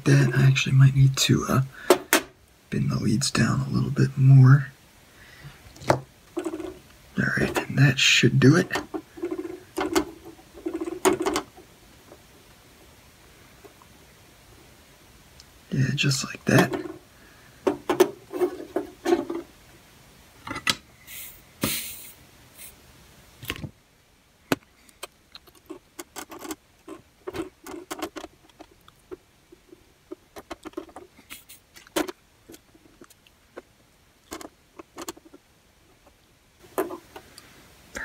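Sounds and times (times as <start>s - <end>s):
short hiss: 21.0s - 22.8s, 31.2s - 31.8s.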